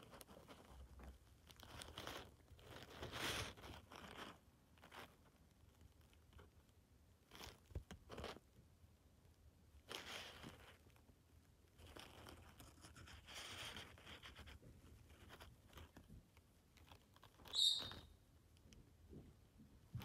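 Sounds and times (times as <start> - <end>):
faint rustling: 0.0 - 8.6, 9.7 - 20.0
chick squeaking: 17.4 - 18.2.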